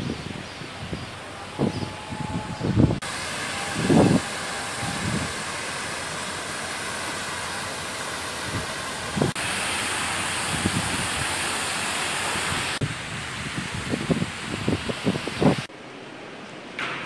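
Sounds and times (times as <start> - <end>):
wind buffeting microphone: 0.0 - 5.4, 8.4 - 9.4, 10.2 - 15.7
fountain water spray hissing: 3.0 - 15.7.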